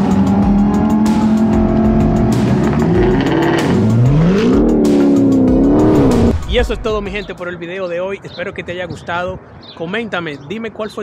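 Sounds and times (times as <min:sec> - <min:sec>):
car engine accelerating: 0:00.0 - 0:06.4.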